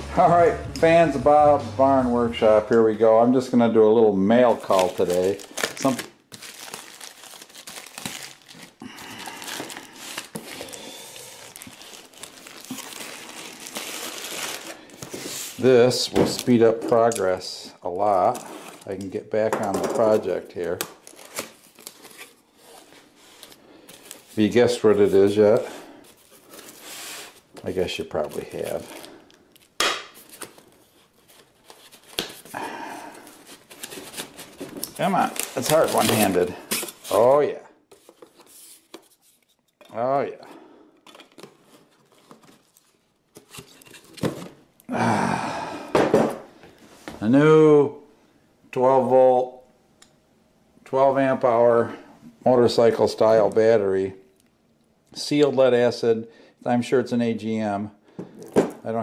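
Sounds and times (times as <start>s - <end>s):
plastic mailer bag crinkling: 4.2s - 15.5s, 20.0s - 32.6s, 33.2s - 37.4s.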